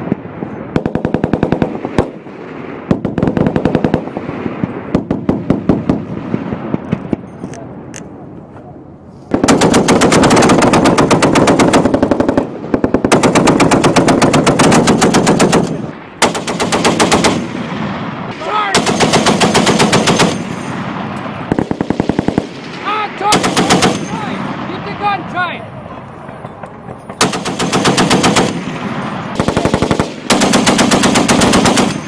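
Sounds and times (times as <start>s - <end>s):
heavy machine gun bursts: 18.7s - 20.7s, 23.3s - 24.4s, 27.1s - 32.0s.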